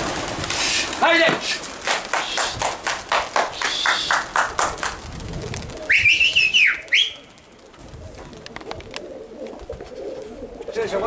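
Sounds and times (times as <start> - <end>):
pigeon wingbeats clattering: 0.0 - 11.0
loud two-part whistle: 3.6 - 4.2, 5.9 - 7.2.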